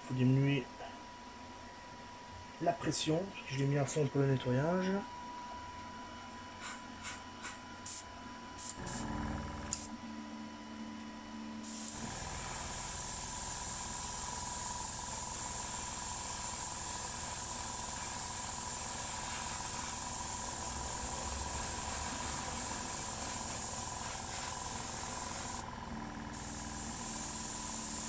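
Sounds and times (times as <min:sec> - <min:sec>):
airbrush air hiss: 0:06.6 - 0:09.1, 0:11.6 - 0:25.6, 0:26.3 - 0:28.0
compressor motor humming: 0:08.6 - 0:10.1, 0:11.6 - 0:28.0.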